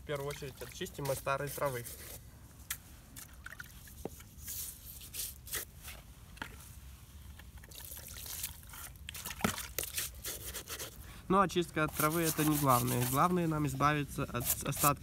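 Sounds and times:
water splashing and trickling: 0.0 - 5.5, 7.3 - 10.9.

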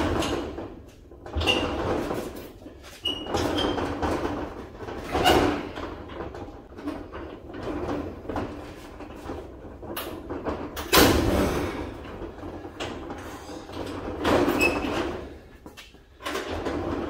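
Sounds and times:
metal roll-up door rattling: 0.0 - 17.0.

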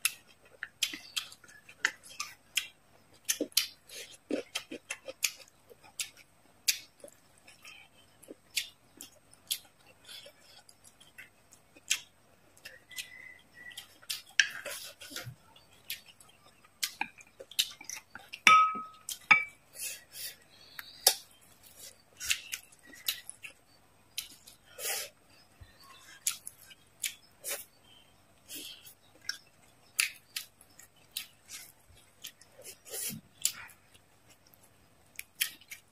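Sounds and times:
chewing with crisp crackles: 0.0 - 35.9
chopsticks clinking against dish: 18.5 - 19.6.

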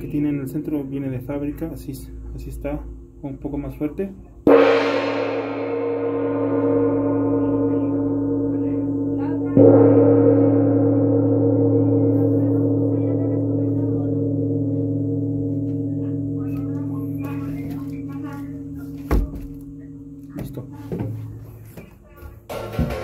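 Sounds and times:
wind gong ringing: 0.0 - 21.7
mallet striking gong: 4.4 - 21.6, 22.5 - 23.0.

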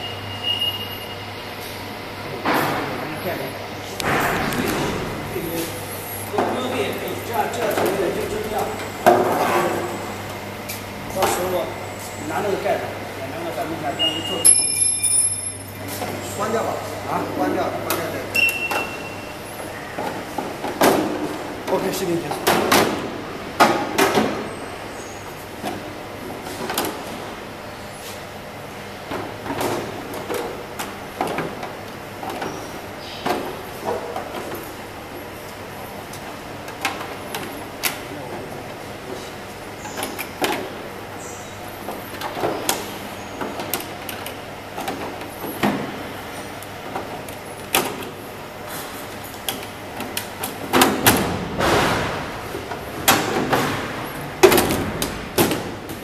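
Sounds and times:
panels clicking and clattering: 2.3 - 11.7, 29.0 - 56.0.

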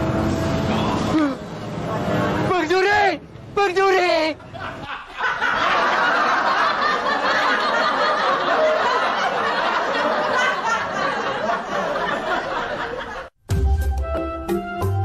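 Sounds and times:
crowd laughing: 4.4 - 13.4.

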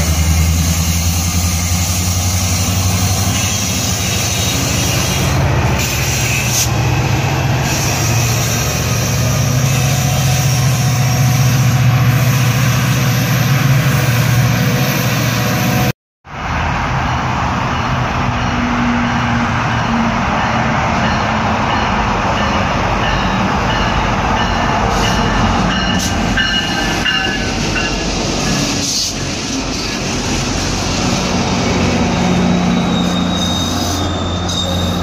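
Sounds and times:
diesel locomotive engine drone: 0.0 - 35.0
train rumble: 0.0 - 35.0.

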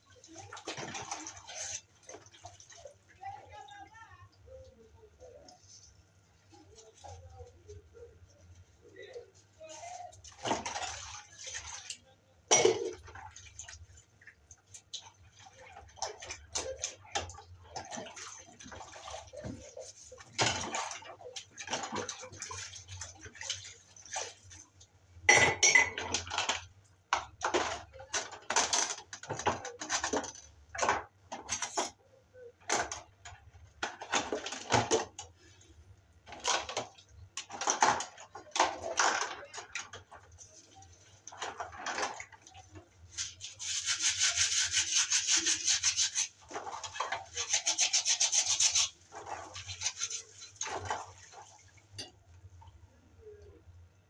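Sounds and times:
sponge scrubbing dishes: 0.0 - 3.7, 4.5 - 52.2
pots and utensils clinking: 12.5 - 13.2, 25.3 - 32.0.

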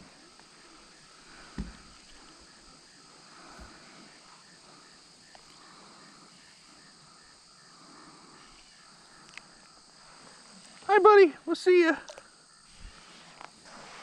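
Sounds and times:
insects buzzing: 0.0 - 14.0
dull thump: 1.4 - 2.2.

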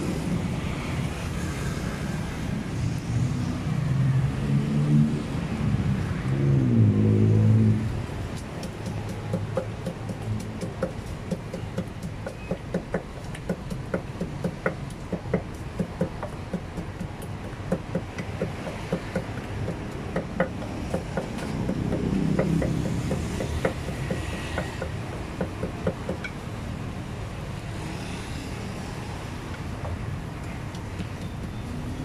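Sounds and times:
traffic hum: 0.0 - 32.0
passing engine: 2.8 - 8.2
pestle pounding in clay mortar: 8.3 - 26.4.

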